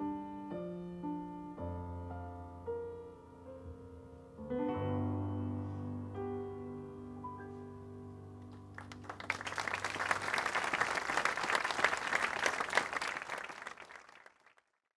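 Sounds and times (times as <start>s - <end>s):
piano chord: 0.0s - 9.1s
audience applause: 8.7s - 14.8s.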